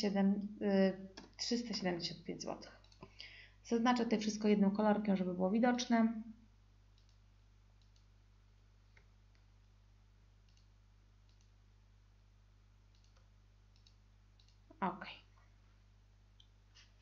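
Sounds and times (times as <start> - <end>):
low electrical hum: 0.0 - 17.0
computer mouse clicks: 2.8 - 3.2, 6.9 - 7.2, 7.8 - 8.1, 10.4 - 11.6, 12.9 - 14.6.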